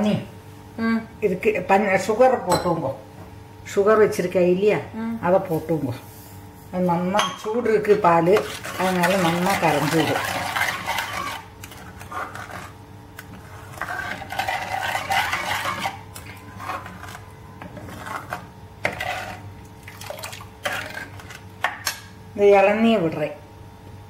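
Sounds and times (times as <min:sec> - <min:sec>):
ladle scraping a pan: 0:08.2 - 0:21.4.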